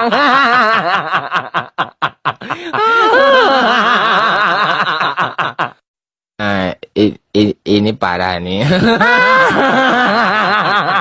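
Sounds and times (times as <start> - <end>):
person laughing: 0.0 - 5.8, 8.6 - 11.0.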